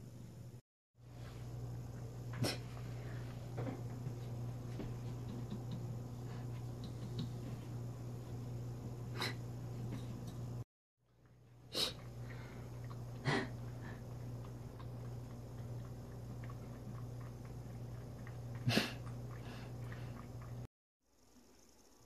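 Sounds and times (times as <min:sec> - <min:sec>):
steady low hum: 0:00.0 - 0:21.8
cat licking and chewing: 0:11.2 - 0:20.7.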